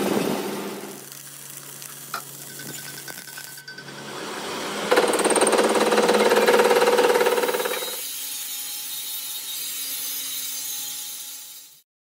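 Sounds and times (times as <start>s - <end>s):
angle grinder cutting metal: 3.5s - 11.8s.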